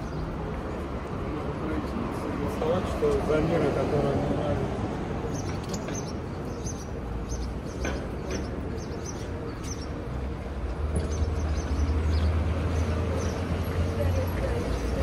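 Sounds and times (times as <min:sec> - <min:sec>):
low traffic rumble: 0:00.0 - 0:15.0.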